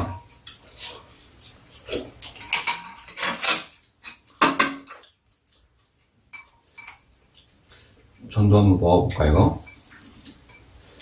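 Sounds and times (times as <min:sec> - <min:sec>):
utensils clinking on ceramic bowls: 0:02.2 - 0:05.2, 0:06.3 - 0:07.1, 0:09.5 - 0:11.0.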